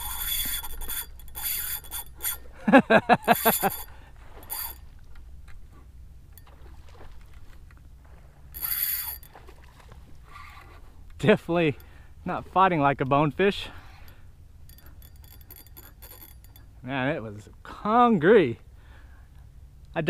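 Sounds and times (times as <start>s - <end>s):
fishing reel drag buzzing: 0.0s - 2.6s, 3.2s - 5.0s, 8.5s - 9.5s, 10.2s - 10.9s, 13.7s - 16.8s.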